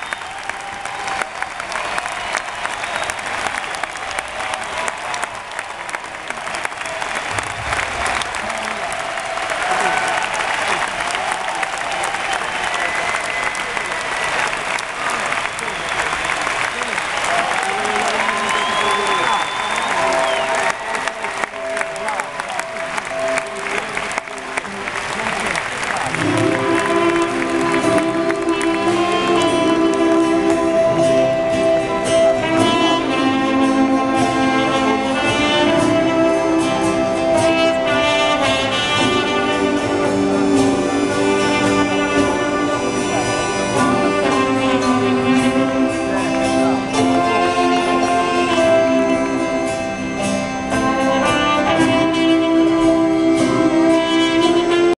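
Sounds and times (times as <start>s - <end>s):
live band playing slow tune: 16.3s - 55.0s.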